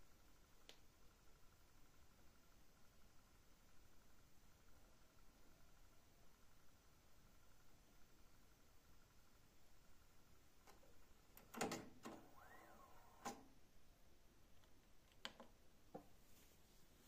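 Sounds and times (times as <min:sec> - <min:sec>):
faint rising and falling whine: 0:00.0 - 0:17.0
cassette deck mechanical clicks: 0:11.4 - 0:13.5.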